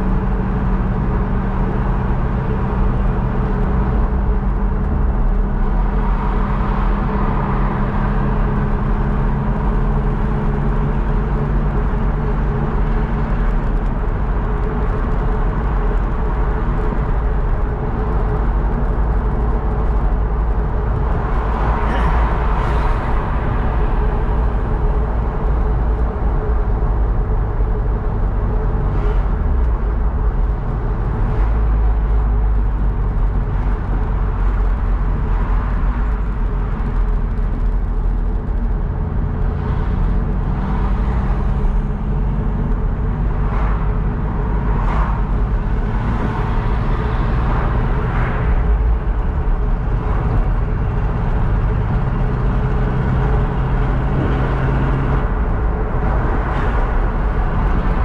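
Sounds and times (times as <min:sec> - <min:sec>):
car engine hum: 0:00.0 - 0:58.0
tyre and road noise: 0:00.0 - 0:58.0.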